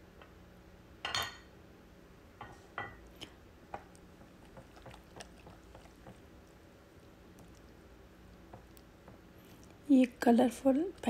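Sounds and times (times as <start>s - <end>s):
spatula stirring batter in glass bowl: 3.8s - 6.3s.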